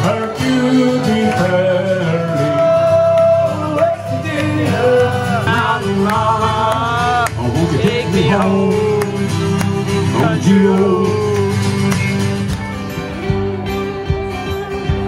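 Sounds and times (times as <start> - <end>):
man singing: 0.0 - 11.9
acoustic guitar: 0.0 - 15.0
fiddle: 11.6 - 15.0.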